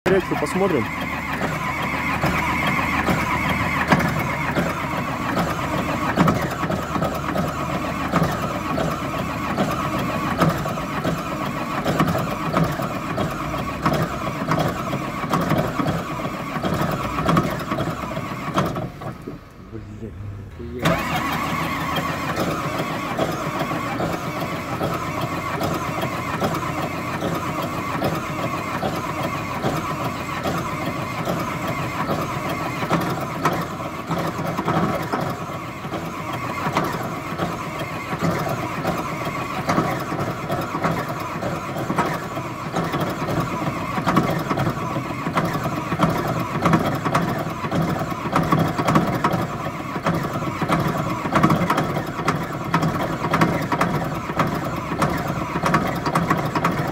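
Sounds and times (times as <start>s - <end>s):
bulldozer diesel engine running: 0.0s - 56.9s.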